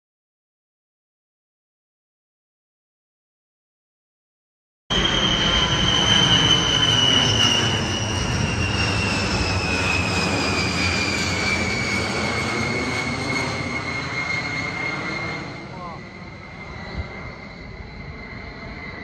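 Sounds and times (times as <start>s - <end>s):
jet aircraft roar: 4.9s - 19.0s.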